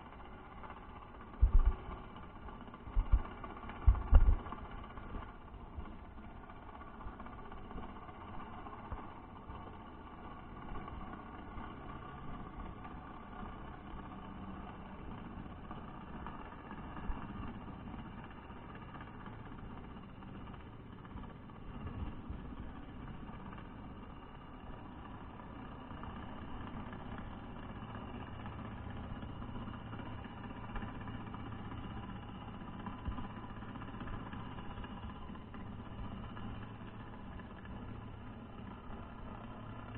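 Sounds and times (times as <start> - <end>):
low engine hum underwater: 0.0 - 39.9.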